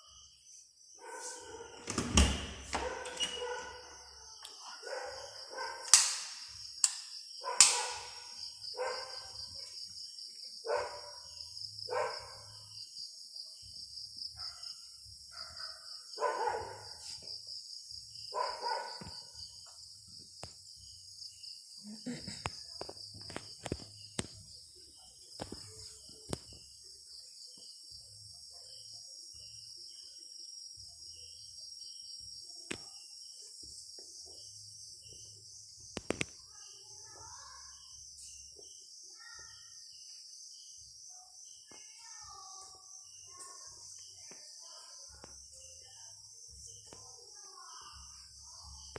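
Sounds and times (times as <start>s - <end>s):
night insects chirring: 0.0s - 48.9s
dog barking: 1.0s - 1.8s, 2.8s - 6.0s, 7.4s - 9.5s, 10.6s - 11.3s, 11.9s - 12.6s, 14.4s - 17.1s, 18.3s - 19.3s.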